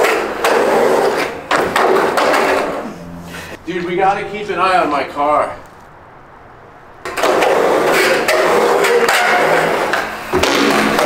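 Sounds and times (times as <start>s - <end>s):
skateboard wheels rumbling in pipe: 0.0s - 3.6s, 7.0s - 11.0s.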